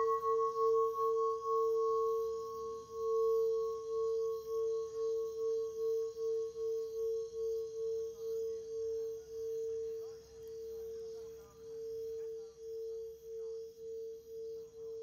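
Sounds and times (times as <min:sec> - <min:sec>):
pulsing ringing drone: 0:00.0 - 0:15.0.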